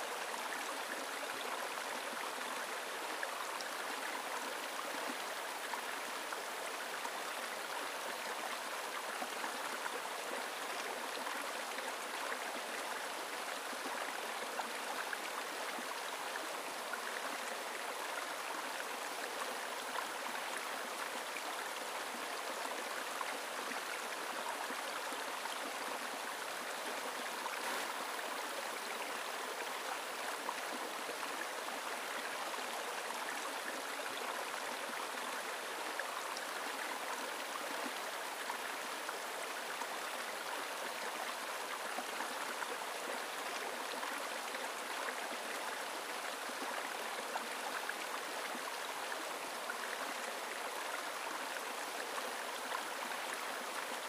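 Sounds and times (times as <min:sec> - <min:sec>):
stream running over rocks: 0:00.0 - 0:54.0.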